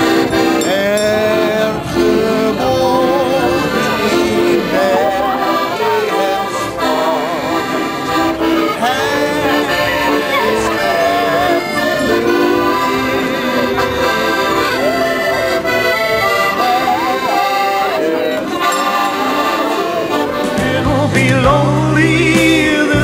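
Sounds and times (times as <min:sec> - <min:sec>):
accordion playing cheerful tune: 0:00.0 - 0:23.0
person singing: 0:00.0 - 0:23.0
bass line: 0:19.4 - 0:23.0.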